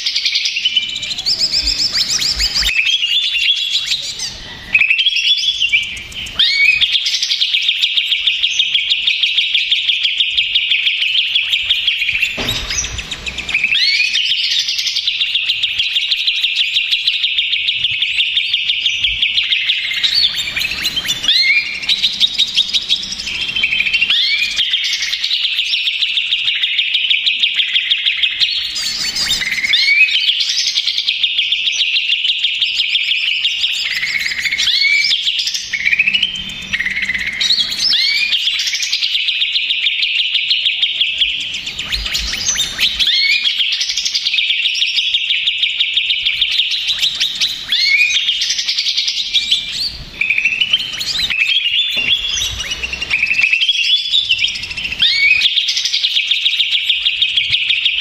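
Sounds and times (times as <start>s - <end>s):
bird singing trills and whistles: 0.0s - 58.0s.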